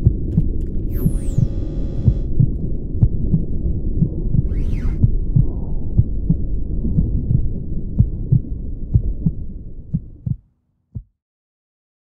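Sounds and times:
steady low rumble: 0.0 - 10.4
heartbeat thumps: 0.0 - 11.2.

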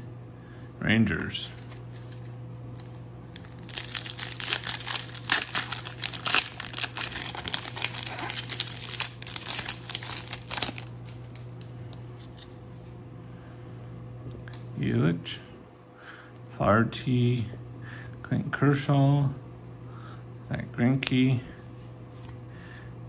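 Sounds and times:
foil wrapper tearing and crinkling: 1.7 - 12.4.

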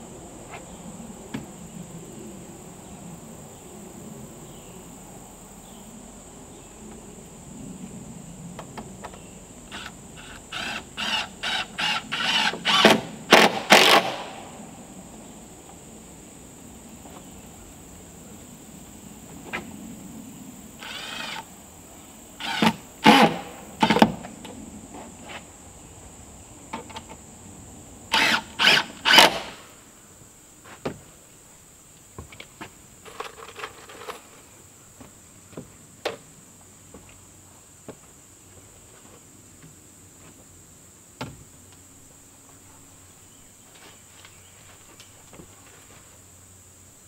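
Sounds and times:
cordless drill driving screws: 9.7 - 14.2, 20.8 - 21.5, 22.4 - 23.4, 28.1 - 29.6.

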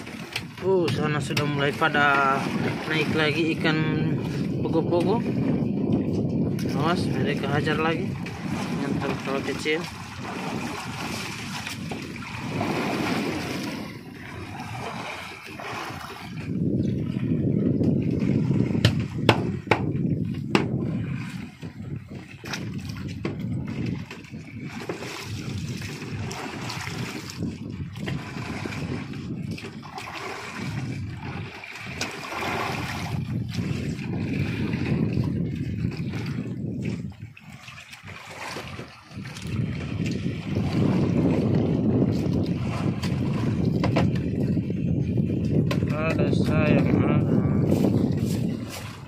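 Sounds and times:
sharp splashes or knocks: 0.0 - 3.3, 8.1 - 16.6, 17.8 - 21.6, 22.4 - 44.4
sea water sloshing: 0.0 - 49.0
wind rushing: 2.2 - 29.6, 32.2 - 37.2, 38.6 - 49.0.

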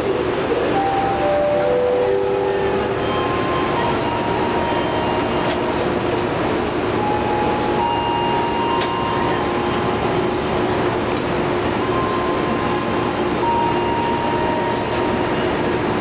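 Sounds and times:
train wheels rumbling on rail: 0.0 - 16.0
rail joint clicks: 0.2 - 16.0.

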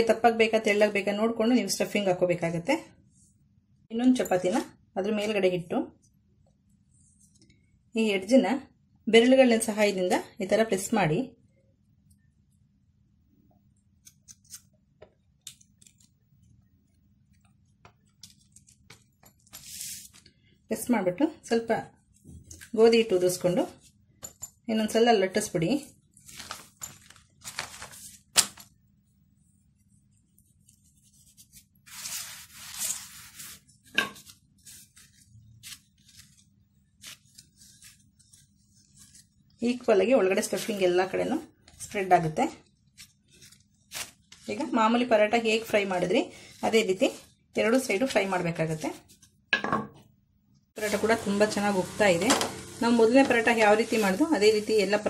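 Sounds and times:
hands rubbing flour on dough: 17.9 - 20.2, 29.6 - 42.0, 53.4 - 55.0.

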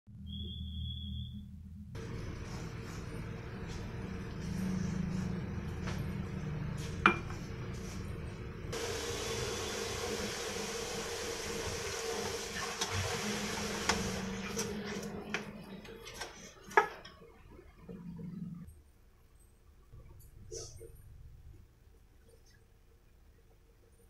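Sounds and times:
steady hum: 0.2 - 18.8.

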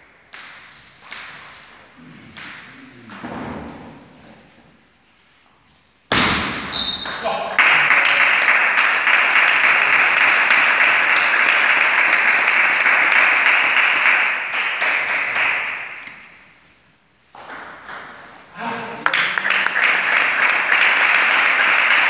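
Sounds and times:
applause: 7.6 - 15.9, 19.0 - 22.0.

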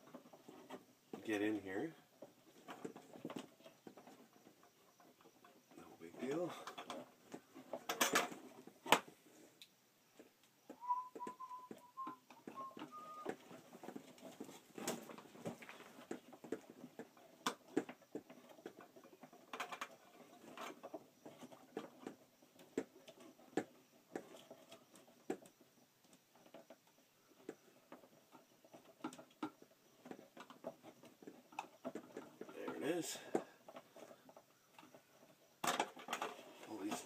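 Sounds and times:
faint wavering whistle-like tone: 10.7 - 13.4.

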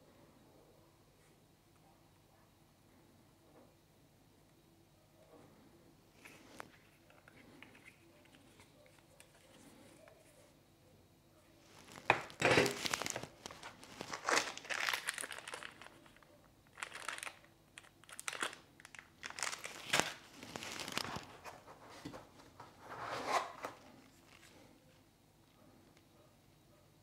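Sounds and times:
plastic bag crinkling: 11.7 - 21.7.

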